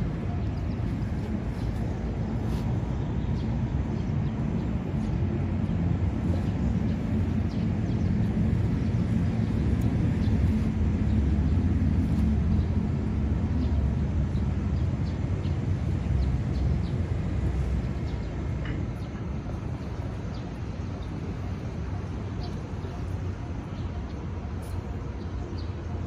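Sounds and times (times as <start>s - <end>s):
low rough outdoor rumble: 0.0s - 26.0s.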